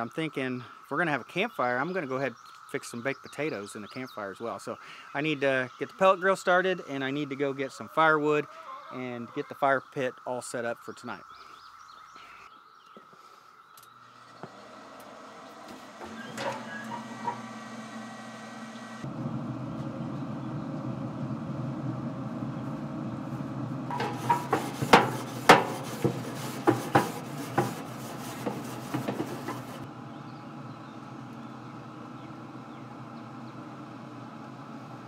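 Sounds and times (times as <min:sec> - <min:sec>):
steady low hum: 0:13.8 - 0:35.0
grill scraper on metal grates: 0:14.1 - 0:18.7, 0:23.9 - 0:29.9.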